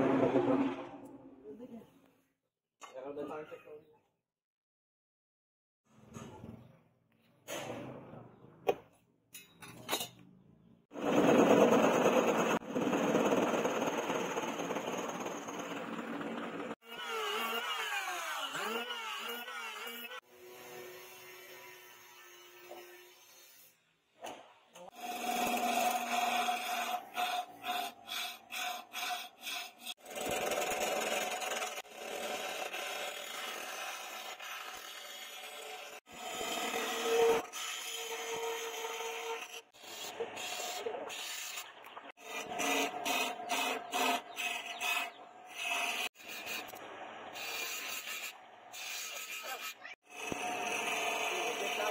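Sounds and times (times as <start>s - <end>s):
power saw cutting wood: 10.9s - 23.7s, 24.8s - 51.9s
chisel scraping wood on lathe: 25.0s - 46.8s, 47.4s - 51.9s.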